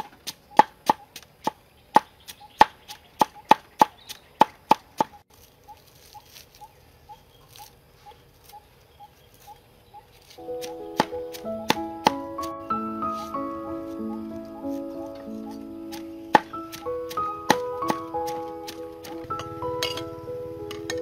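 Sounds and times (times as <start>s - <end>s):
cleaver chopping on wooden board: 10.6s - 12.2s, 15.9s - 19.2s.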